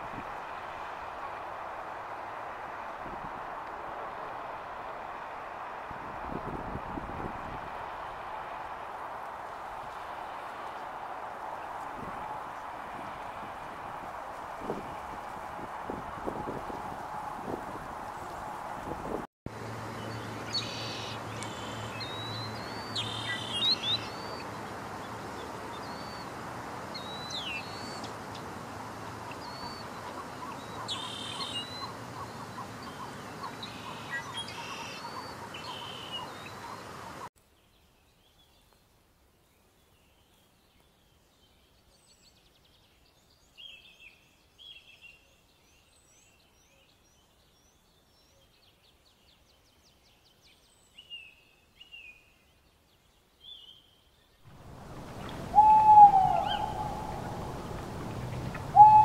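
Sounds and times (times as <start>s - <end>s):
faint high songbird calls: 20.0s - 24.5s, 29.3s - 37.3s, 54.7s - 59.0s
steady background hiss: 54.5s - 59.0s
birds chirping and whistling: 54.9s - 59.0s.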